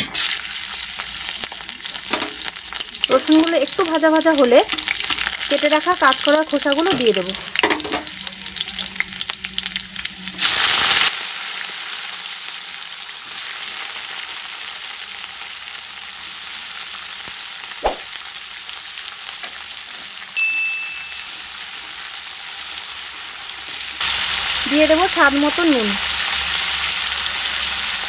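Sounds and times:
peel sizzling in hot oil: 0.0s - 28.0s
brief high ring: 20.4s - 21.4s.

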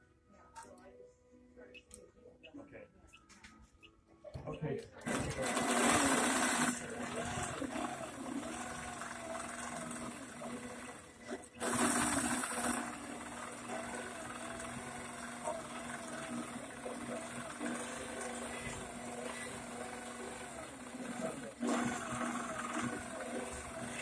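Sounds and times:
quilting machine humming: 5.0s - 24.0s.

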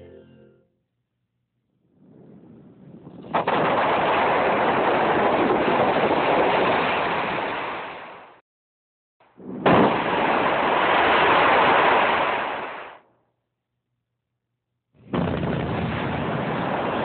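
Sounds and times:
blast detonations: 3.2s - 7.3s, 9.4s - 12.6s, 15.1s - 17.0s.

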